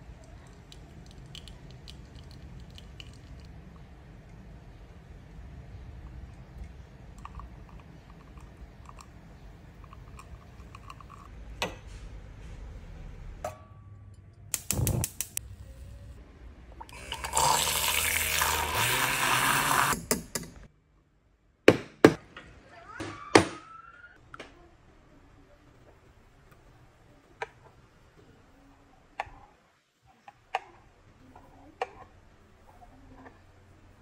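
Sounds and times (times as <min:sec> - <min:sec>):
low hum with clicks: 0:00.0 - 0:17.0
milk steaming hiss: 0:16.9 - 0:20.0.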